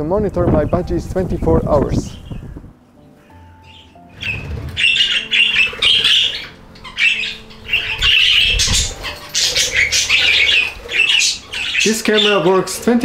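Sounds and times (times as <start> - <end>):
budgerigars chattering: 3.2 - 13.0.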